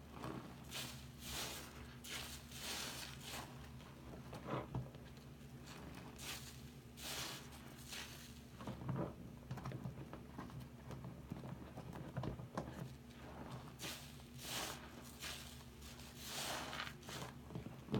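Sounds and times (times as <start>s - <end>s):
wet sponge squelching: 0.2s - 3.9s, 13.2s - 17.4s.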